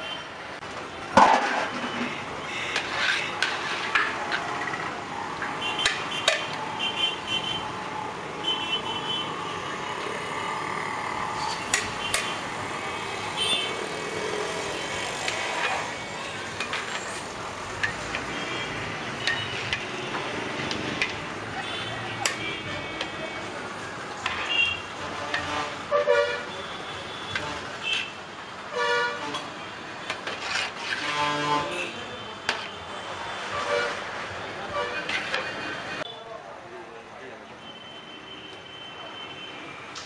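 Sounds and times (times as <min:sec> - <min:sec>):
metal ladle scraping cooking pot: 0:01.4 - 0:04.9, 0:29.2 - 0:31.9, 0:34.8 - 0:35.7.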